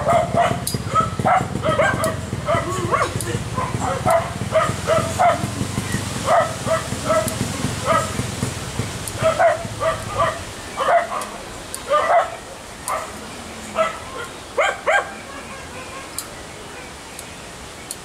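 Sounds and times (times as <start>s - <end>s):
dog barking: 0.0s - 5.5s, 6.2s - 8.2s, 9.2s - 13.2s, 13.8s - 16.1s.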